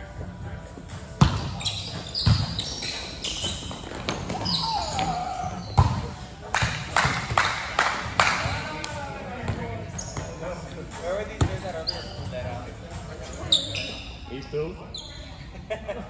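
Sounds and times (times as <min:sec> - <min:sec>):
basketball bouncing on hard court: 0:01.2 - 0:02.7, 0:03.3 - 0:07.3.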